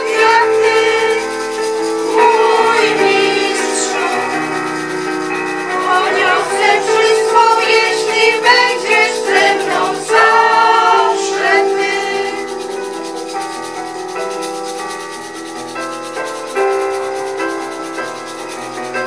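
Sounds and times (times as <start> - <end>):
group of people singing: 0.0 - 12.9
long steady held notes: 0.0 - 19.0.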